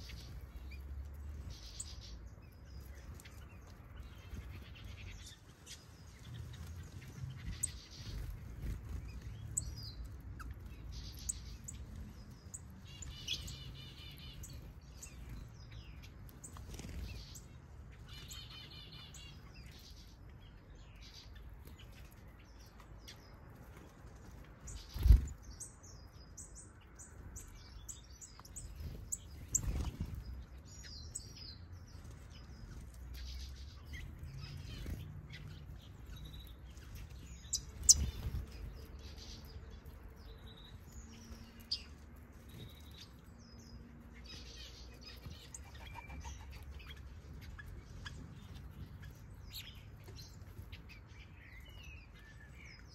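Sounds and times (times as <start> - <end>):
small birds chirping: 0.0 - 52.9.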